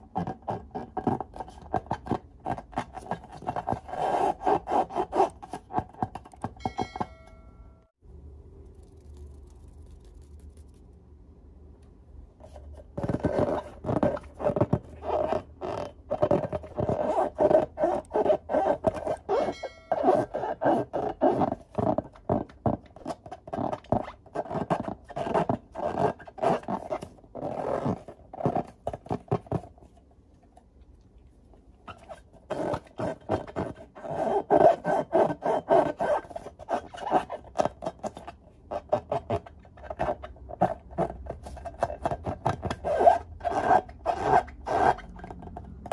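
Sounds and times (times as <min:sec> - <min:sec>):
rubbery scraping of balloons: 0:00.0 - 0:06.5, 0:12.4 - 0:29.8, 0:31.9 - 0:45.9
balloon squeak: 0:13.2 - 0:22.0, 0:41.8 - 0:45.2.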